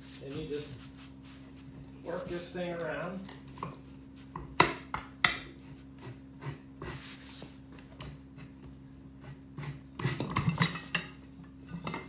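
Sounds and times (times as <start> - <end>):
metal bar scraping tire rim: 9.2 - 12.0.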